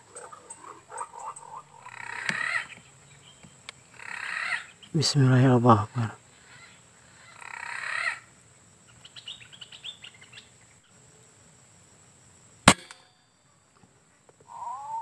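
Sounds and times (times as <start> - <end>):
birds calling: 0.0 - 10.9, 14.4 - 15.0
air rifle shot: 12.7 - 13.1.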